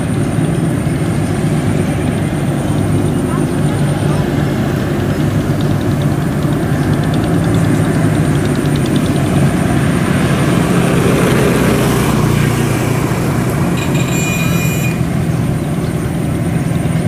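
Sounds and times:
harvester engine running: 0:00.0 - 0:17.0
high-pitched squeal: 0:09.8 - 0:15.4.

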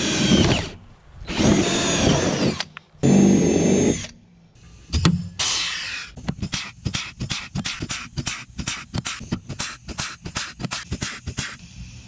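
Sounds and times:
cordless drill whining through steel: 0:00.0 - 0:04.2.

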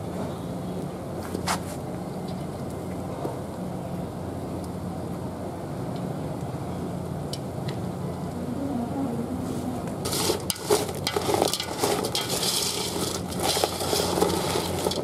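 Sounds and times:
steady low hum: 0:00.0 - 0:15.0
crab shells crackling in pot: 0:10.0 - 0:15.0.

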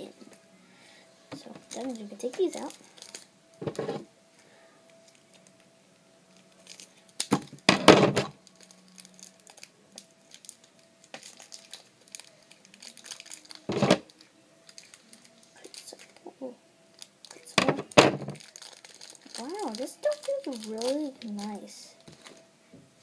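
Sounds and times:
plastic packaging crinkling: 0:01.4 - 0:04.0, 0:06.3 - 0:16.2, 0:16.9 - 0:22.5.

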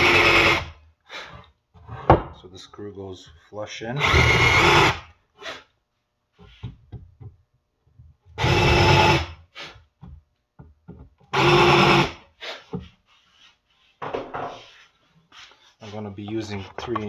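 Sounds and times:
cordless drill boring into wood: 0:00.0 - 0:00.7, 0:04.0 - 0:05.0, 0:08.4 - 0:09.3, 0:11.3 - 0:12.2
wood knocking: 0:10.0 - 0:11.3.

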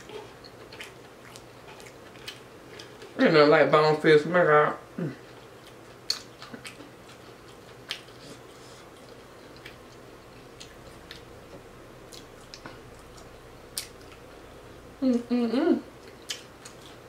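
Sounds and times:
chewing: 0:00.0 - 0:03.2, 0:05.2 - 0:14.4, 0:16.0 - 0:17.0.

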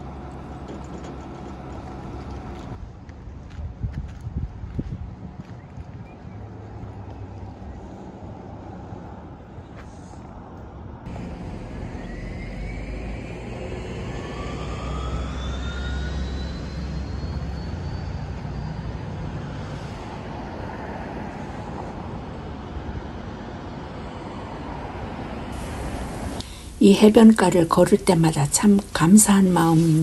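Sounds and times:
passing vehicle rumble: 0:00.0 - 0:30.0
whine rising in pitch: 0:11.1 - 0:20.3.

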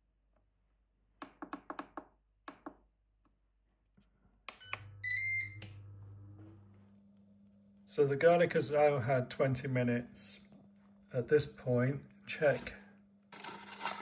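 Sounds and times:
short clicking beeps: 0:04.5 - 0:05.8
fan humming: 0:04.5 - 0:12.8
long high beep: 0:04.6 - 0:05.8.

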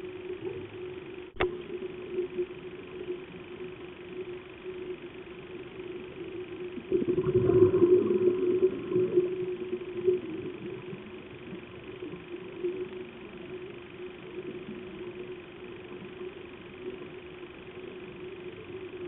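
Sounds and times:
underwater low hum: 0:00.0 - 0:19.0
regulator bubbles rushing: 0:06.5 - 0:13.2.

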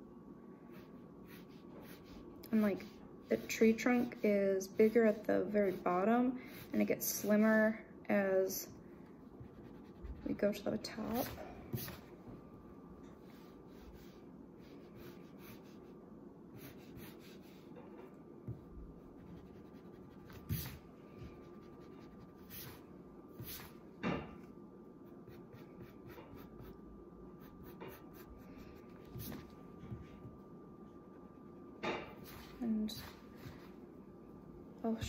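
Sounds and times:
faint steady hum: 0:00.0 - 0:35.0
pencil scratching on paper: 0:00.7 - 0:07.3, 0:09.4 - 0:12.1, 0:13.2 - 0:17.7, 0:18.5 - 0:23.8, 0:25.0 - 0:26.8, 0:27.4 - 0:29.5.

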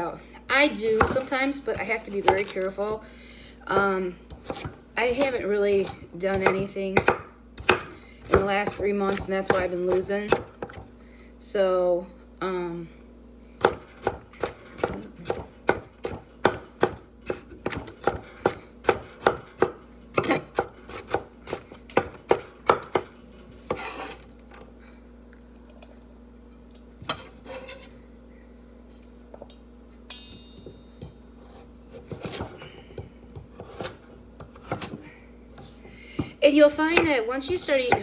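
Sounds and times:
knife chopping on cutting board: 0:03.8 - 0:10.8, 0:31.4 - 0:35.0.

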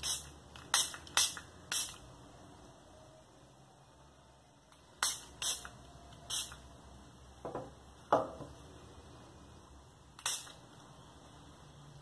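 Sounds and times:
spray bottle hisses: 0:00.0 - 0:02.1, 0:05.0 - 0:06.6, 0:10.2 - 0:10.6.

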